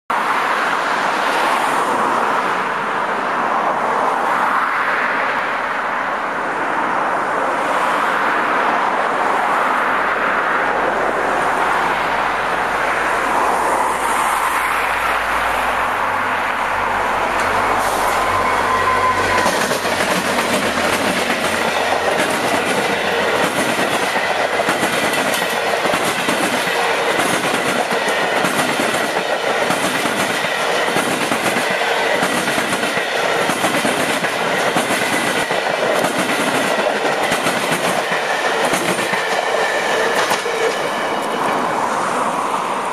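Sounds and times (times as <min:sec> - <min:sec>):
passenger train passing: 0:00.1 - 0:42.9
road traffic: 0:00.1 - 0:42.9
train wheels clicking on rail joints: 0:17.0 - 0:42.2.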